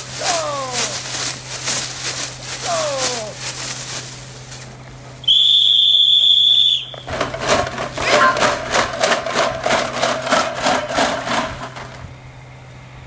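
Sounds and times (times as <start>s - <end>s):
falling-pitch calls: 5.2s - 7.1s
loud whistle blast: 5.2s - 7.1s.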